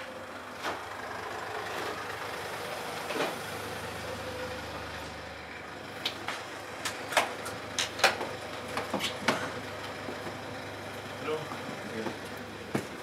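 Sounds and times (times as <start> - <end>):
van engine idling: 0.0 - 13.0.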